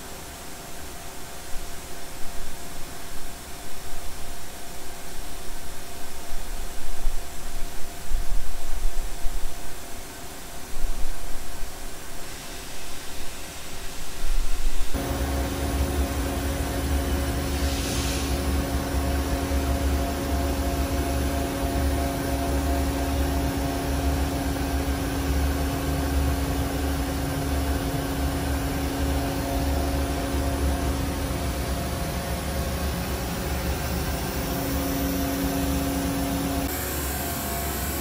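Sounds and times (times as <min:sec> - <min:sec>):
brief hiss: 0:11.8 - 0:15.0, 0:17.4 - 0:18.7
machinery humming: 0:14.8 - 0:38.0.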